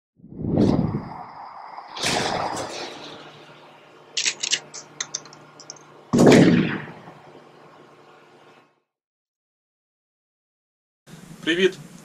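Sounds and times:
loud boom: 0:01.9 - 0:03.4, 0:06.1 - 0:07.3
sharp gunshot-like cracks: 0:02.0 - 0:03.2, 0:06.1 - 0:07.2
logo hit: 0:06.2 - 0:07.2.

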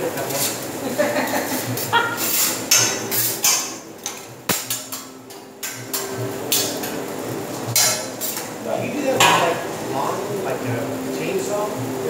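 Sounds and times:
metal spatula scraping on griddle: 0:01.6 - 0:03.8, 0:07.7 - 0:08.5.

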